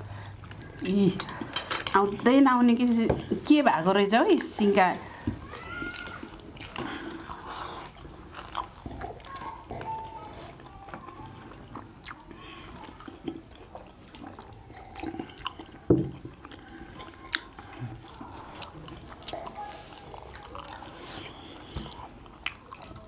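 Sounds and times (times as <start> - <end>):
people chewing food: 0.0 - 23.0
chopsticks clicking on steel plates: 0.8 - 2.1.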